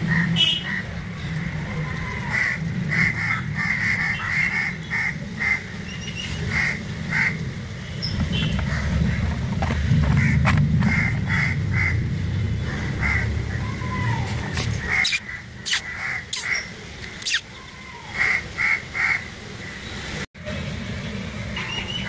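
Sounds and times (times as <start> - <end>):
low rumble: 6.4 - 15.0
squirrels high chirps: 14.9 - 17.8.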